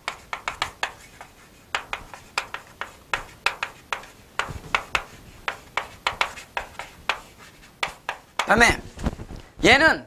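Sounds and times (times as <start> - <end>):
chalk dull knock: 0.0 - 8.6
chalk tapping and scratching: 0.0 - 8.7.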